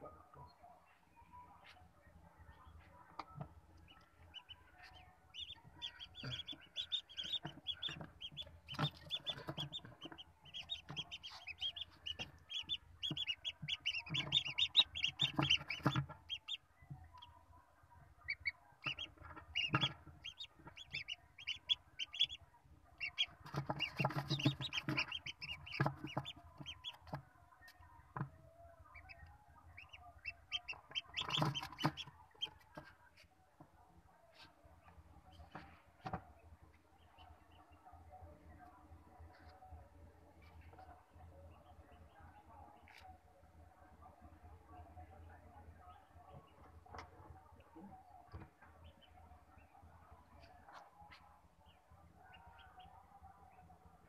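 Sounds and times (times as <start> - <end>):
ducklings peeping: 2.6 - 17.3, 18.2 - 28.2, 28.8 - 32.9.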